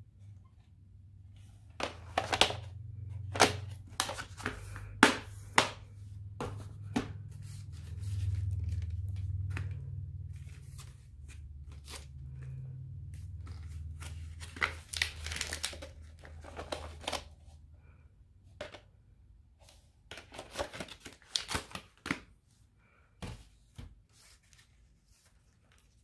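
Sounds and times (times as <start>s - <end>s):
low steady hum: 0.0s - 21.2s
plastic cases clacking: 1.8s - 2.7s, 3.3s - 7.2s.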